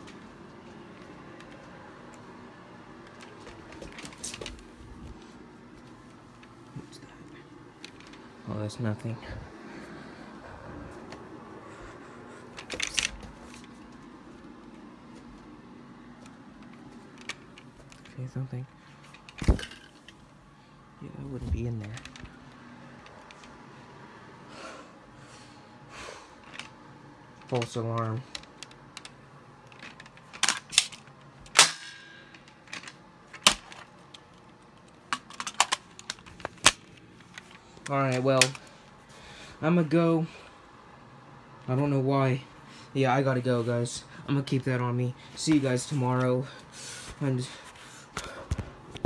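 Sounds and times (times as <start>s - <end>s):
faint low hum: 0.0s - 49.0s
rustling and clicks from handling: 3.0s - 6.7s, 7.8s - 8.3s, 12.4s - 15.5s, 16.2s - 20.2s, 21.5s - 23.6s, 26.4s - 38.7s.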